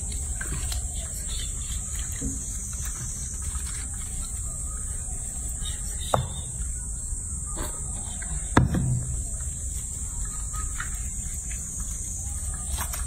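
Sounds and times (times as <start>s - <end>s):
water and rubbing sounds: 0.0s - 6.7s
sharp knocks: 6.1s - 6.7s, 8.6s - 9.2s.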